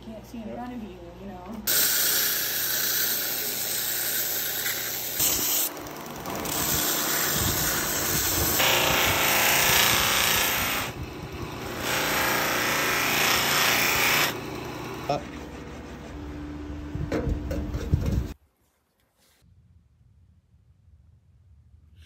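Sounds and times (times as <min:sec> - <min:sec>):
belt grinder grinding steel: 0:01.7 - 0:15.2
abrasive wheel polishing: 0:01.7 - 0:16.2.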